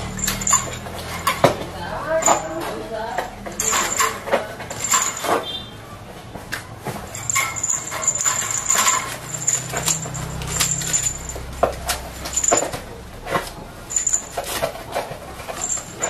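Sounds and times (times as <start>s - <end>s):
claws and beak on wire and wood: 7.1s - 12.8s.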